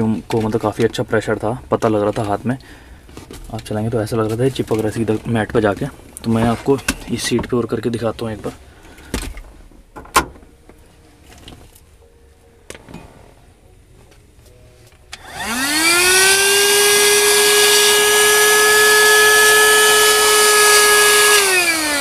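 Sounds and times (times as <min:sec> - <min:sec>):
handheld vacuum cleaner whining: 0:15.1 - 0:22.0.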